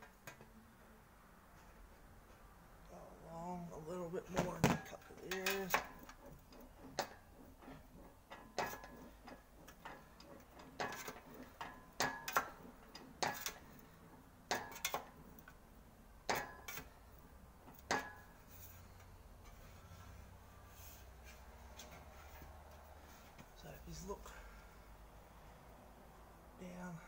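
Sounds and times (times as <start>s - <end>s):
sheet metal clicking in english wheel: 4.8s - 19.7s.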